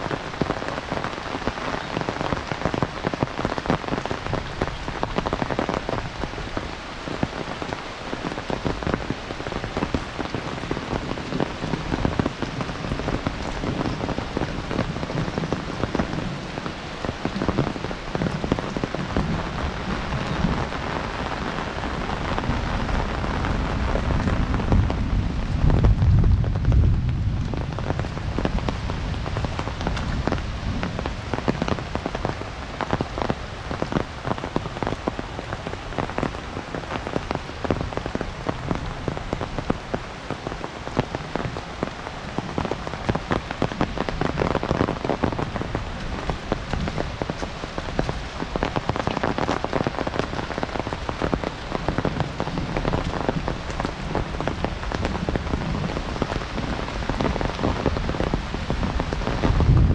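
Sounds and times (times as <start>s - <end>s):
heavy rain pouring: 0.0s - 59.9s
raindrops pattering: 0.0s - 59.9s
low rumble of thunder: 17.3s - 32.1s, 51.8s - 59.9s.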